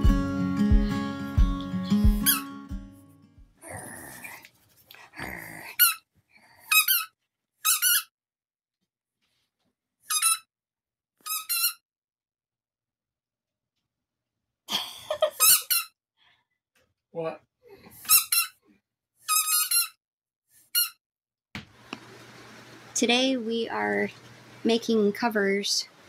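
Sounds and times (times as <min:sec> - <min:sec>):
squeaky ball squeaks: 0:02.2 - 0:02.5, 0:06.7 - 0:08.1, 0:10.1 - 0:10.5, 0:11.2 - 0:11.8, 0:15.4 - 0:16.0, 0:18.0 - 0:18.6, 0:19.3 - 0:20.0, 0:20.7 - 0:21.0.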